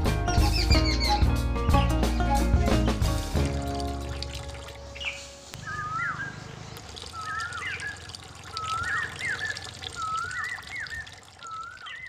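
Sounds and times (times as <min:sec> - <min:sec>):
water trickling into metal bucket: 0:03.3 - 0:05.4, 0:06.6 - 0:12.0
bird whistled call: 0:05.0 - 0:06.5, 0:07.1 - 0:12.0.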